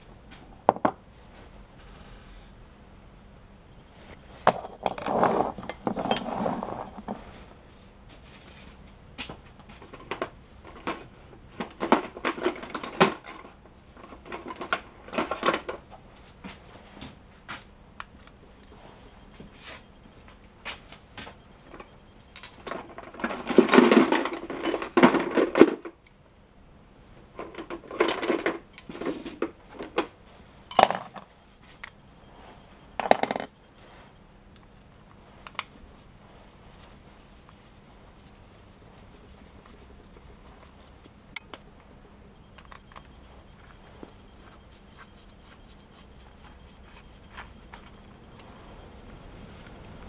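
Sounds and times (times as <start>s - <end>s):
metal tools clattering: 4.6s - 7.2s, 11.6s - 15.7s, 21.8s - 25.8s.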